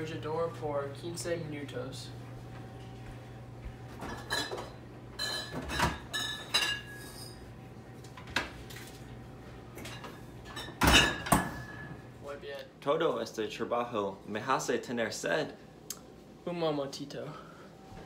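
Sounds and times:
bottles clinking in refrigerator door: 0:04.0 - 0:07.4, 0:09.8 - 0:12.0.

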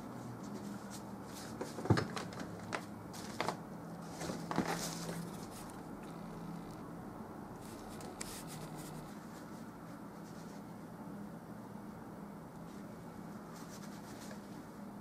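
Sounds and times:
low steady hum: 0:00.0 - 0:15.0
paintbrush strokes: 0:07.5 - 0:10.8.

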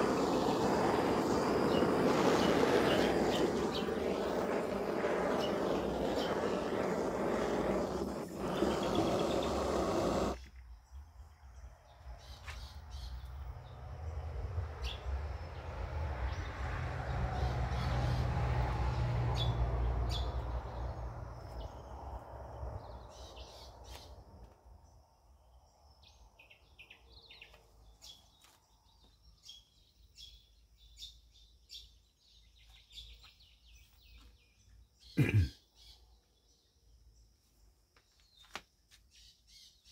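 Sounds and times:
blowtorch flame hissing: 0:00.0 - 0:10.4
birds calling: 0:00.0 - 0:10.5.

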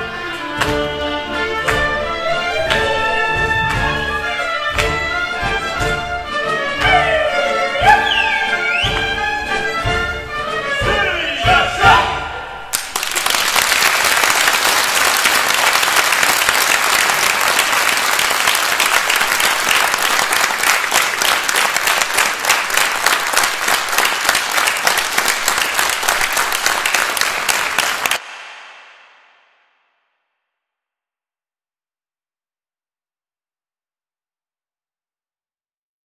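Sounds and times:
audience applauding: 0:01.6 - 0:06.0, 0:12.7 - 0:28.8.

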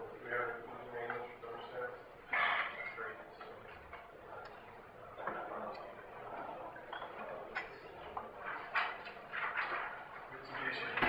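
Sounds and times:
faint indistinct voices: 0:00.0 - 0:11.0.

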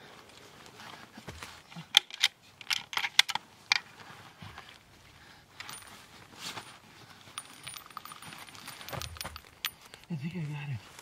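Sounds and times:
rifle metallic clicks: 0:01.9 - 0:03.8
soft rustling: 0:03.5 - 0:11.0.

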